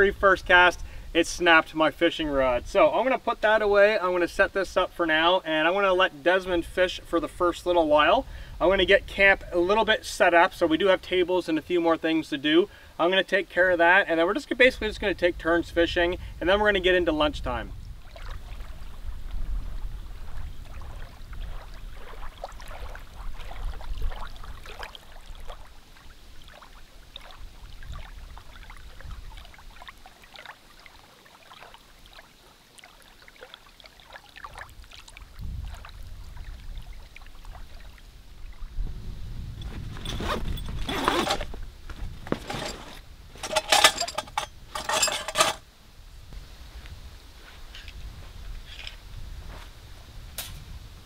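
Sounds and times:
bag zippers zipping: 39.6s - 41.6s, 42.3s - 43.6s.

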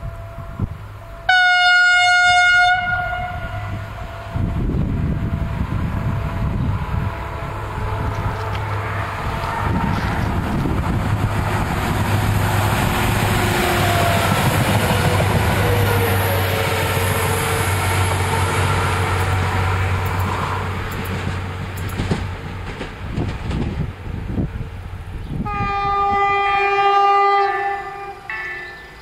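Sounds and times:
diesel train engine drone: 0.0s - 29.0s
train wheel and rail noise: 0.0s - 29.0s.

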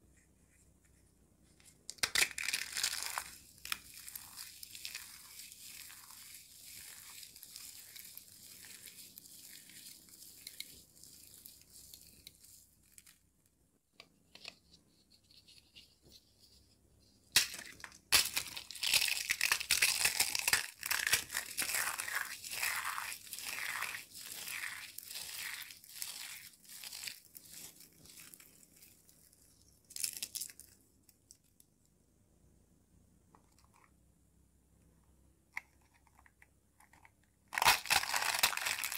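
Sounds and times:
dry soap shells crunching: 1.9s - 13.2s, 17.4s - 31.4s, 35.8s - 38.9s
hands rustling foil confetti: 2.0s - 13.1s, 17.4s - 29.0s, 37.6s - 38.9s.

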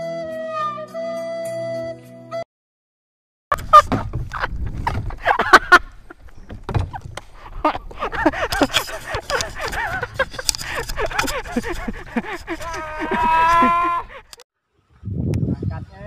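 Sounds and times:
knocks and clatter on wooden boat: 3.6s - 5.3s, 6.2s - 11.7s.

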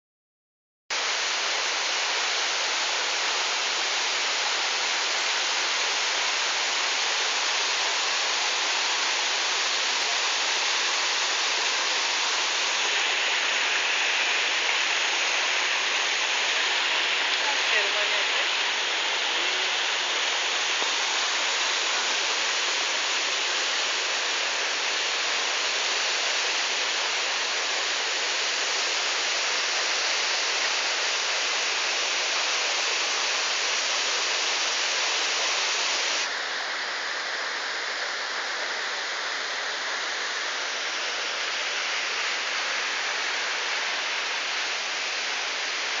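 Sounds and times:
water cascade rushing: 0.9s - 46.0s.

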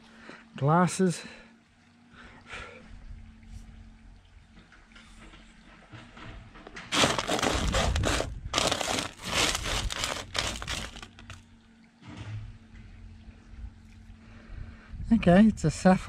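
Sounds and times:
gravel rattling on metal: 6.6s - 11.4s.

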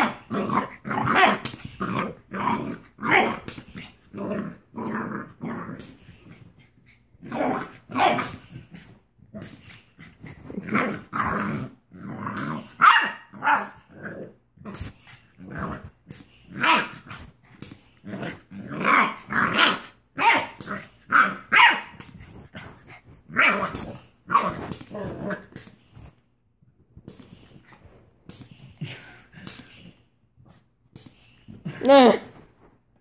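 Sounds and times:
puppy growling and barking: 0.0s - 6.0s, 7.2s - 15.9s, 16.5s - 17.2s, 18.0s - 25.6s.

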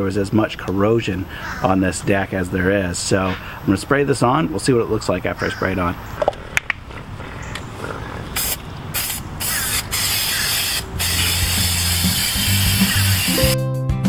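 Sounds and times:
aerosol can spraying hiss: 8.4s - 13.6s.

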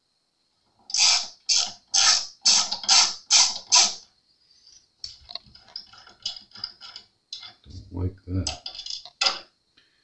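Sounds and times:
tool rasping on tuner screw: 0.9s - 4.0s.

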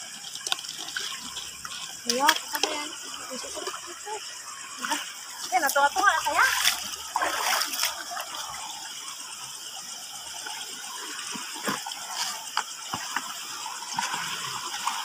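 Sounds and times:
small splashes: 0.0s - 8.6s
stream water rushing: 0.0s - 15.0s.

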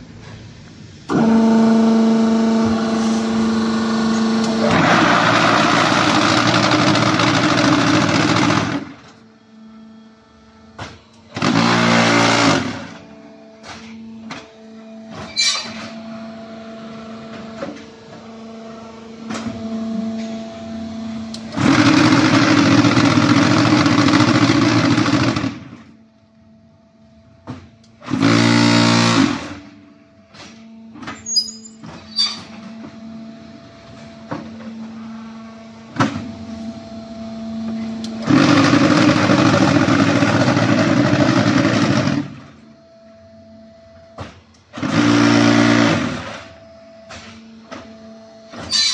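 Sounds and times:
hydraulic pump hum: 0.0s - 48.9s.

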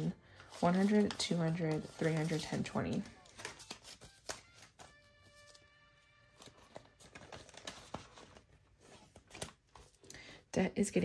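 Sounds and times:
paper bills rustling: 0.0s - 10.1s.

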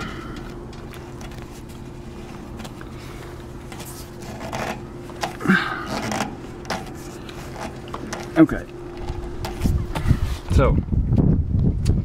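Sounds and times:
faint steady hum: 0.0s - 12.0s
plastic scrapes and knocks: 3.7s - 8.4s.

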